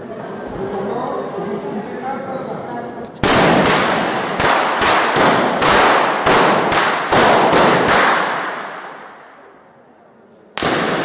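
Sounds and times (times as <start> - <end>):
revolver shots ringing in hall: 3.2 - 9.8, 10.5 - 11.0.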